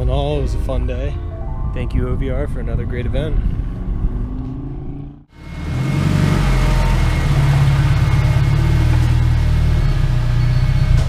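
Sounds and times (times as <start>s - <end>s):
car engine running: 3.6s - 11.0s.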